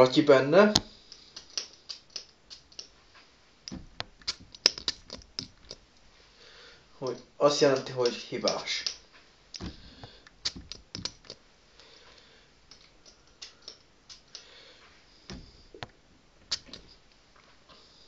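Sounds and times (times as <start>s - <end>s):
light handling clicks and knocks: 0.7s - 5.8s, 7.0s - 11.4s, 15.3s - 17.6s.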